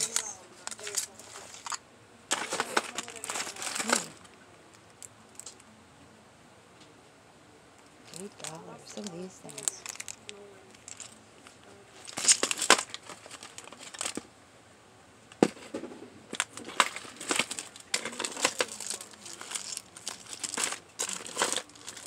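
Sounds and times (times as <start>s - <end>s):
plastic packaging crinkling: 0.0s - 5.6s, 8.0s - 14.3s, 16.3s - 22.0s
plastic cases clicking: 12.0s - 14.2s, 16.3s - 22.0s.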